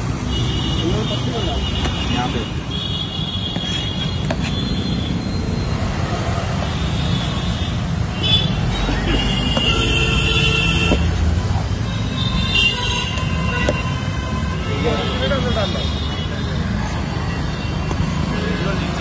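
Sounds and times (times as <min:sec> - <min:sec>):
passing vehicles rumbling: 0:00.0 - 0:19.0
vehicle horn: 0:09.2 - 0:11.0, 0:12.0 - 0:16.3.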